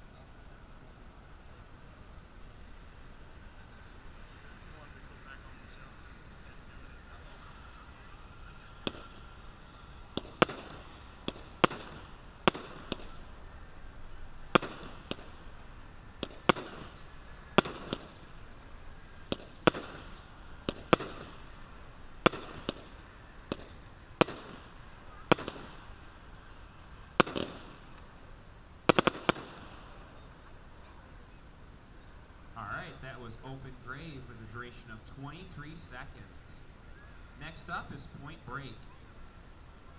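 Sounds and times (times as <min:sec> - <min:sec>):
firework crackle: 0:06.1 - 0:31.4
firework shots reports: 0:08.6 - 0:13.6, 0:14.3 - 0:30.7.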